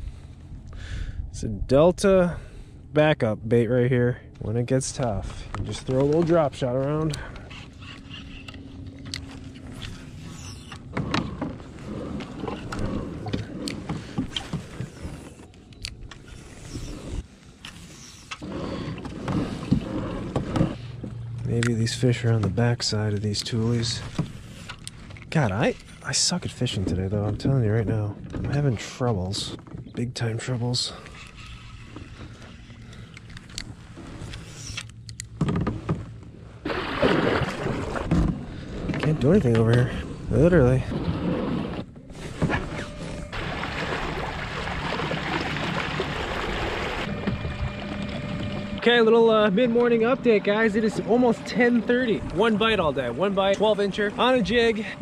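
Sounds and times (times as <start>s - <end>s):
water churning along hull: 5.1s - 55.0s
boat knocks and clicks: 5.5s - 10.0s, 10.7s - 16.2s, 18.3s - 25.7s, 26.5s - 30.3s
water churning and splashing: 36.6s - 39.5s, 42.1s - 55.0s.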